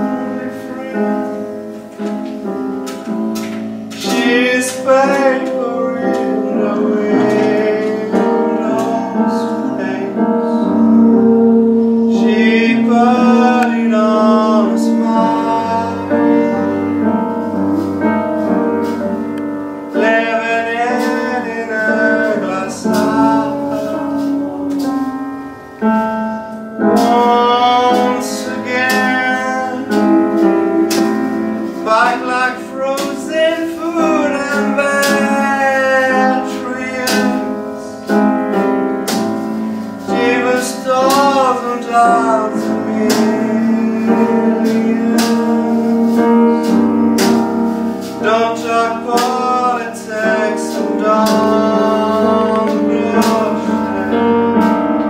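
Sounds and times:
man singing into a microphone: 0.0 - 1.5, 3.9 - 18.0, 19.9 - 25.2, 26.8 - 38.3, 39.8 - 55.0
keyboard accompaniment: 0.0 - 55.0.

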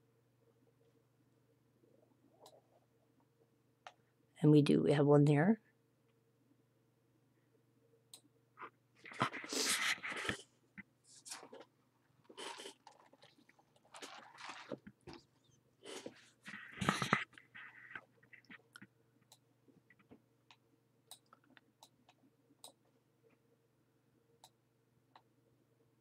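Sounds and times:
faint electrical hum: 0.0 - 26.0
computer mouse clicks: 18.3 - 22.8.

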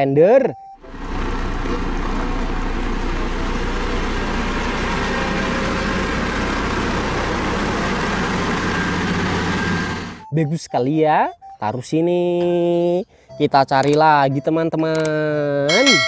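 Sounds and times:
diesel engine running: 0.7 - 10.3.

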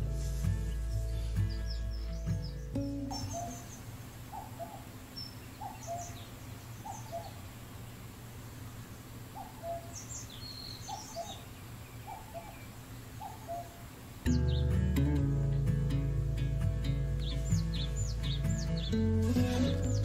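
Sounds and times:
faint high chirps: 0.8 - 7.4
owl hooting: 3.1 - 7.5, 9.3 - 14.0.

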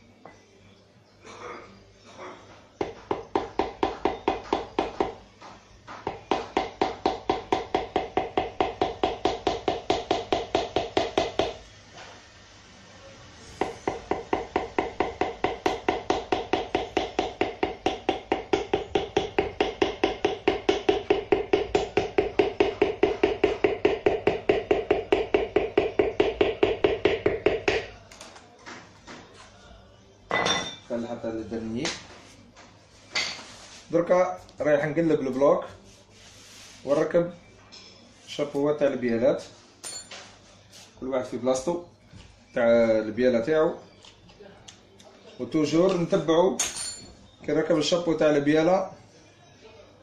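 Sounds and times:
wooden handle tapping metal piston: 13.9 - 27.9.

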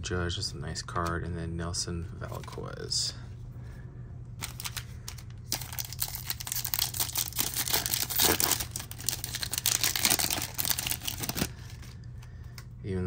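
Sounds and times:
foil wrapper crinkling: 4.4 - 12.1.

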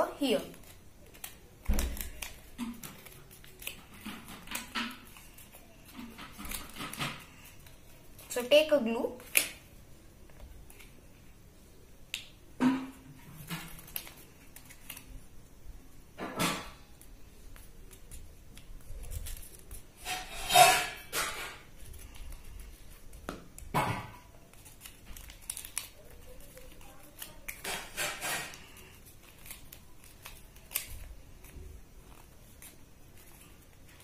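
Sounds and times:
paper rustling and crinkling: 0.2 - 9.6, 13.1 - 15.3, 16.6 - 34.0.

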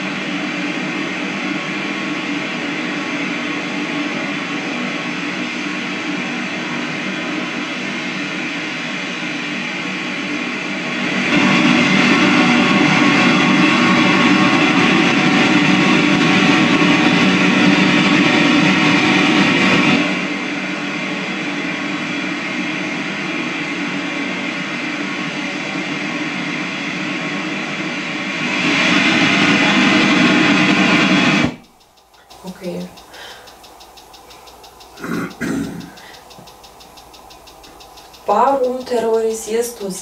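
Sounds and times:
garbled electronic noise: 31.5 - 40.0.

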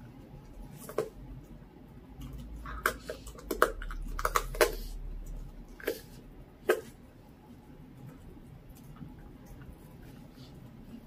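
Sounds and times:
teeth crunching bone: 2.2 - 6.1.

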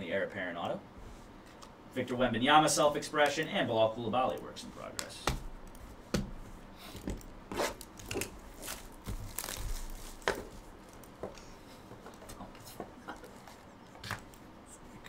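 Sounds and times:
plastic shrink wrap crinkling: 6.9 - 12.4.

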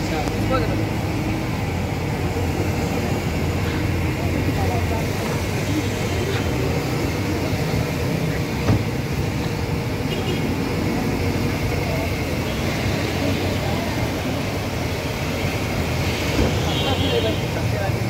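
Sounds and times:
low rumble of street traffic: 0.0 - 18.0.

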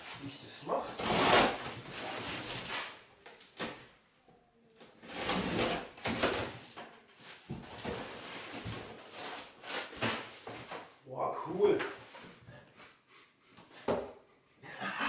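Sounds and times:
cardboard flaps scraping and rustling: 1.0 - 3.8, 5.0 - 11.0
packing tape being cut and pulled: 1.0 - 3.8, 4.9 - 6.5, 7.8 - 10.8.

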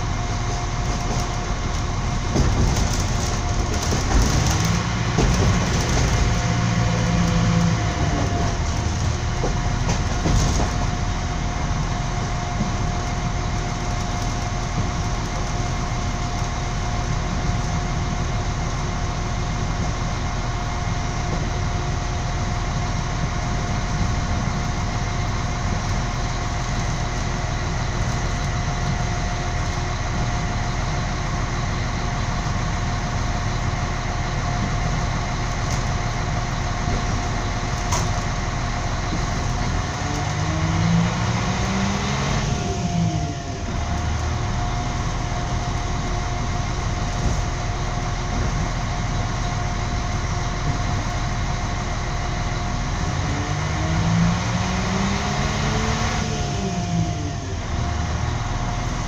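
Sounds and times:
train knocks: 0.0 - 13.8, 19.2 - 30.6, 32.0 - 41.4, 43.6 - 51.8
train rumbling: 0.0 - 59.0.

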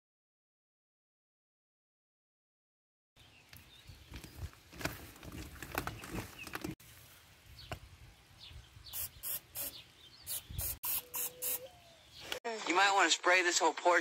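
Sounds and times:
hose rustling and plastic clicking: 3.5 - 6.8
aerosol spray hissing: 8.9 - 11.7.

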